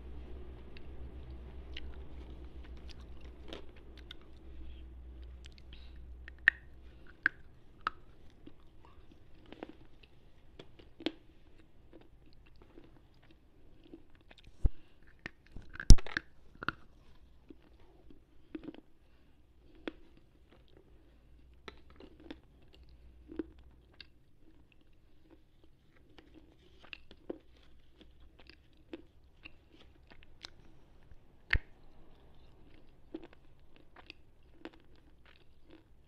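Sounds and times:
low hum: 0.0s - 9.1s.

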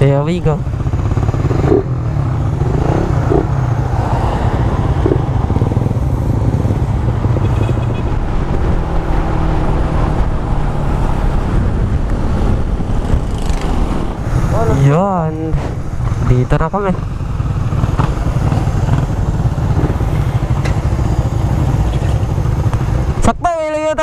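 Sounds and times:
motorcycle engine running: 0.0s - 23.9s
wind noise on microphone: 3.0s - 14.8s.

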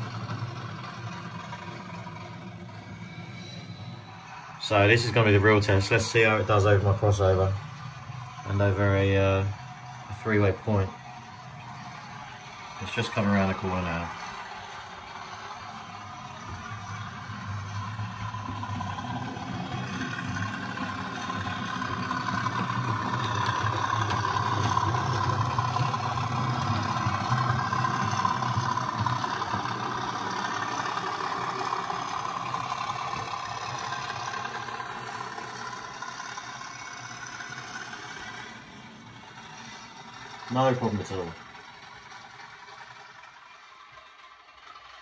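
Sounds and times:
diesel engine sound from small speaker: 0.0s - 45.0s.

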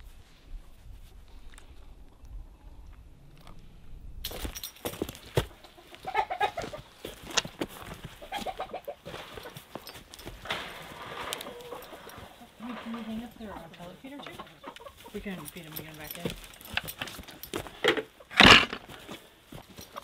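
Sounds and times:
rustling: 4.3s - 20.0s
hens clucking: 5.4s - 16.1s, 17.3s - 20.0s.

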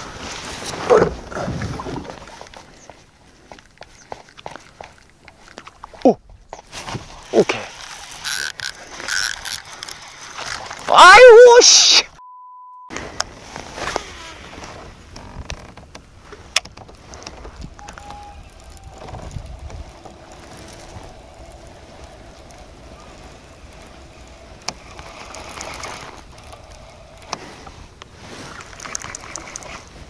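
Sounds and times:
wind: 0.0s - 30.0s
fishing reel whirring: 7.1s - 11.9s, 17.1s - 29.9s.

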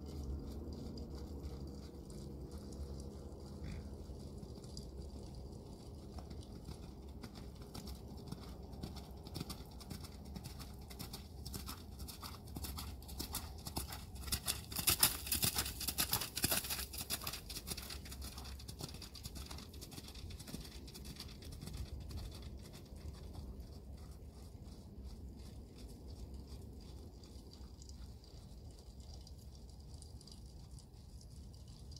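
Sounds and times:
horse hoofbeats on wet footing: 0.0s - 31.9s.

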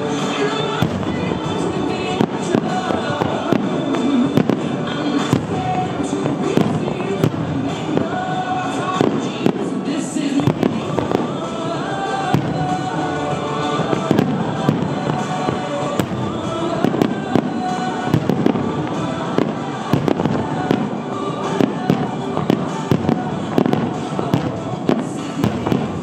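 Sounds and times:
firework shells bursting: 0.0s - 26.0s
loud music with held notes: 0.0s - 26.0s.

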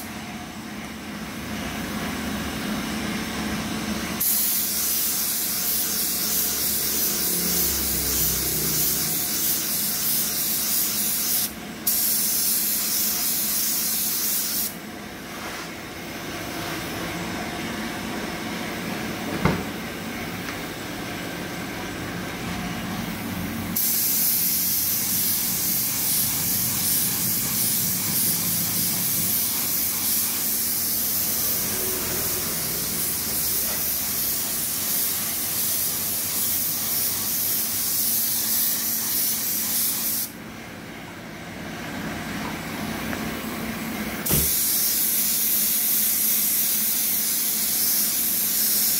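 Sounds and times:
paint spray hiss: 4.2s - 14.8s, 23.8s - 31.8s, 32.4s - 40.4s, 44.2s - 48.9s.

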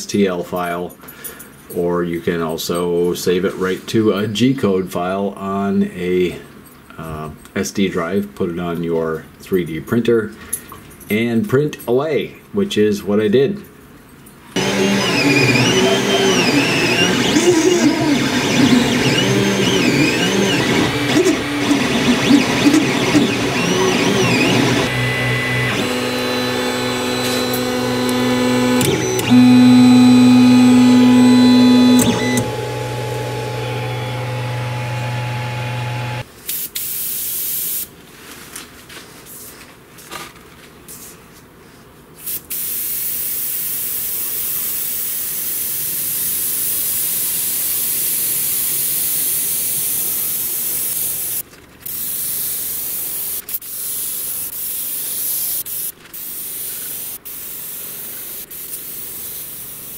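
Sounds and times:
stepper motors whining: 14.6s - 36.2s
airbrush spraying hiss: 51.2s - 59.9s.

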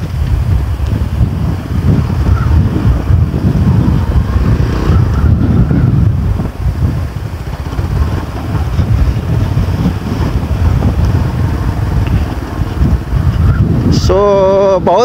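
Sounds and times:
motorcycle running: 0.0s - 15.0s
wind buffeting microphone: 0.0s - 15.0s.

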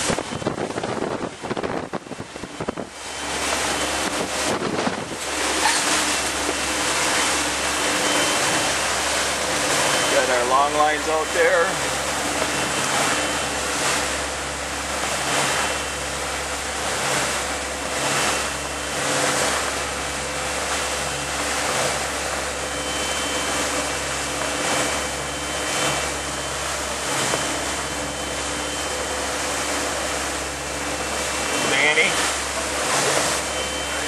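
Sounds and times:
boat engines droning: 0.0s - 34.0s
wake rushing: 0.0s - 34.0s
wind: 0.0s - 34.0s.

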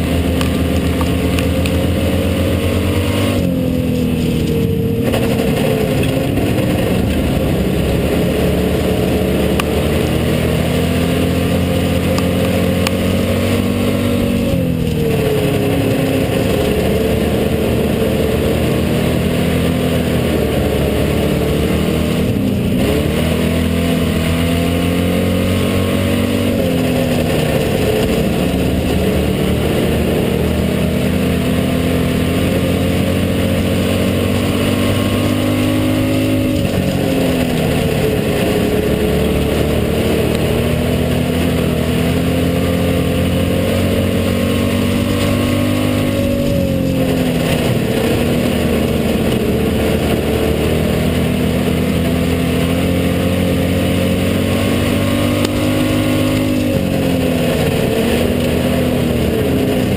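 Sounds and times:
race car engine: 0.0s - 59.9s.

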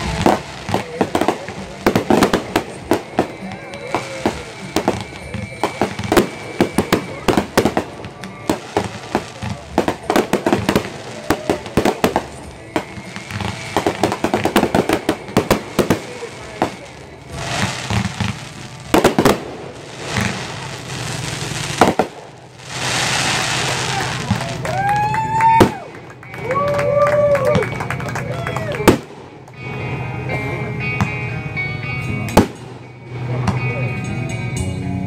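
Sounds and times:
fireworks cracking and banging: 0.0s - 30.3s, 32.2s - 33.8s.

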